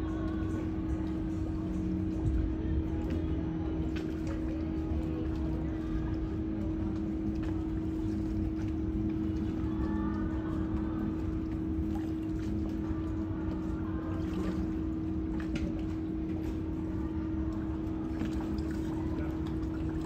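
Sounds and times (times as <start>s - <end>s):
boat generator droning: 0.0s - 20.0s.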